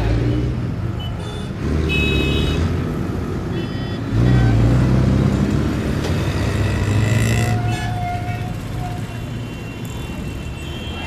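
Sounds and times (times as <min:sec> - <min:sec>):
vehicle engines droning: 0:00.0 - 0:11.0.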